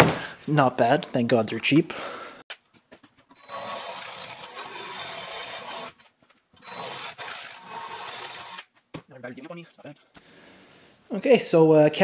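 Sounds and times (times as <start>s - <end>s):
electric drill cutting steel: 3.3s - 8.7s.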